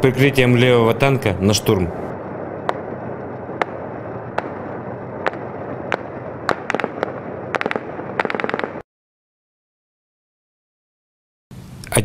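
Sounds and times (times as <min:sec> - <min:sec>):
gunshots: 0:03.5 - 0:08.8.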